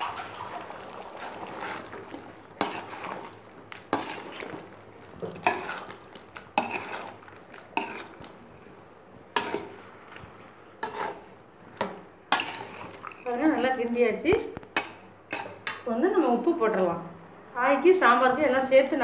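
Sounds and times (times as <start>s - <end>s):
metal spoon scraping pot: 0.0s - 4.6s, 5.4s - 6.0s, 6.6s - 7.2s, 7.8s - 8.2s, 9.4s - 9.8s, 10.8s - 11.2s, 12.3s - 13.0s, 15.3s - 15.8s.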